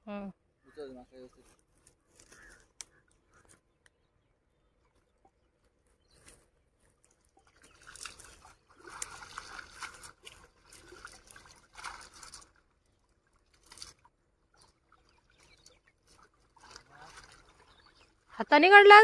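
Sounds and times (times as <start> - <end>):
shallow water splashing: 4.9 - 19.0.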